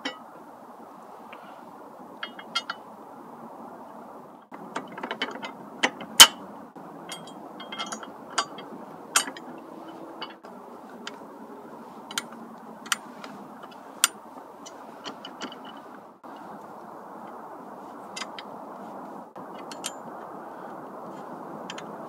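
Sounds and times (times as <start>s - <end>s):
faint background noise: 0.0s - 22.0s
metal brackets clinking: 2.2s - 2.8s, 7.0s - 11.2s, 12.1s - 16.5s, 18.0s - 18.6s, 19.5s - 20.2s.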